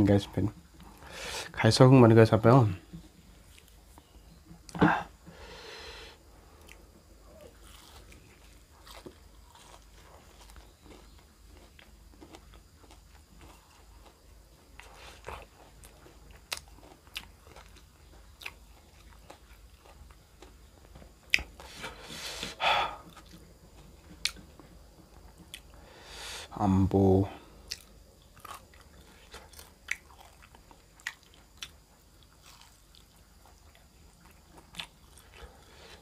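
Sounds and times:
person chewing crunchy food: 0:06.5 - 0:25.8, 0:27.4 - 0:36.0.

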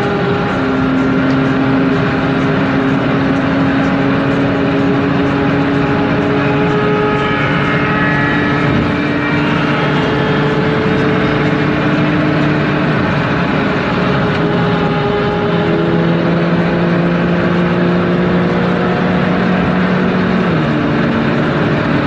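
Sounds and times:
car engine drone: 0:00.0 - 0:22.0
wind and tyre roar: 0:00.0 - 0:22.0.

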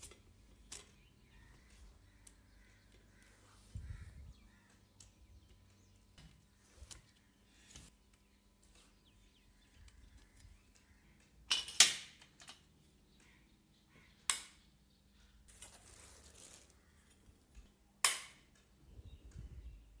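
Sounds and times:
rustling scrape: 0:15.5 - 0:17.2.

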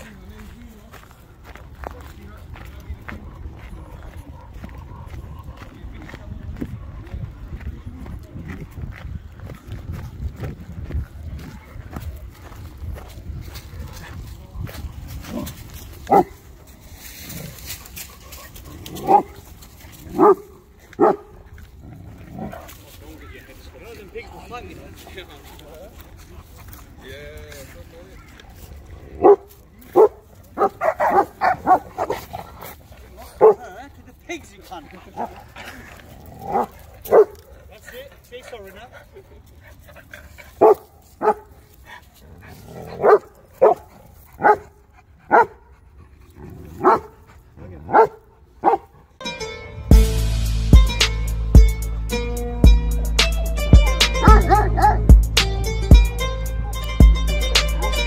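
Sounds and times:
large dog barking: 0:15.3 - 0:16.4, 0:18.2 - 0:21.4, 0:29.1 - 0:32.6, 0:33.2 - 0:33.8, 0:36.3 - 0:37.4, 0:40.6 - 0:41.6, 0:42.7 - 0:45.7, 0:46.5 - 0:49.0, 0:54.2 - 0:55.1.

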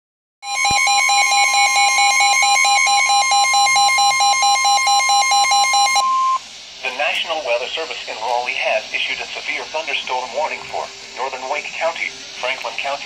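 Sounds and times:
rapid alert beeps: 0:00.4 - 0:06.4
steady alarm tone: 0:00.4 - 0:06.5.

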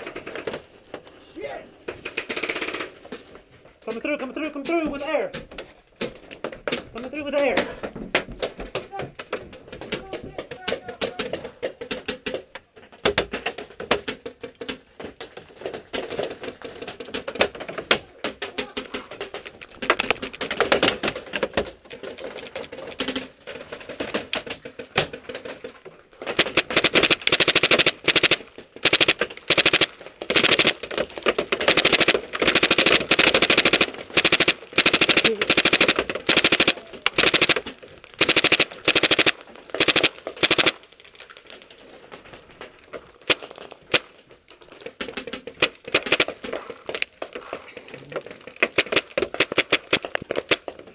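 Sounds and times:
paintball gun firing: 0:26.3 - 0:31.0, 0:31.6 - 0:40.8, 0:45.9 - 0:46.4, 0:48.8 - 0:50.6.

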